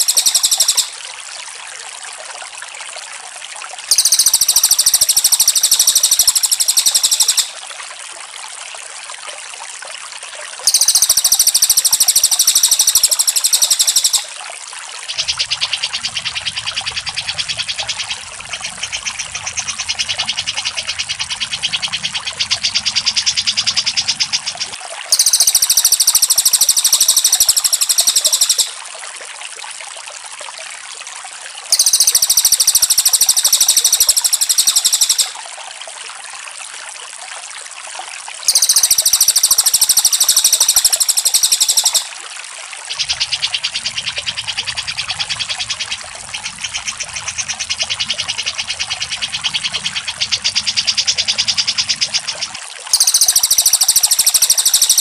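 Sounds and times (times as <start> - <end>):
rattling bird chatter: 0.0 - 0.9, 3.9 - 7.5, 10.7 - 14.2, 25.1 - 28.7, 31.7 - 35.3, 38.5 - 42.1, 52.9 - 55.0
recorded birdsong high notes: 0.0 - 1.0, 3.9 - 7.5, 10.7 - 14.3, 23.6 - 28.8, 31.7 - 35.4, 38.5 - 42.1, 48.3 - 55.0.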